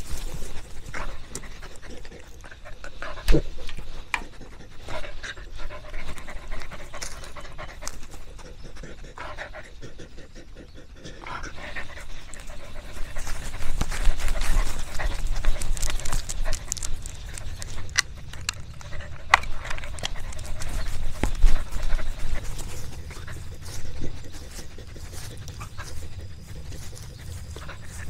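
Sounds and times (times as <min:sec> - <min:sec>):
dog panting: 0:00.0 - 0:28.0
clicks and rustles: 0:11.8 - 0:28.0.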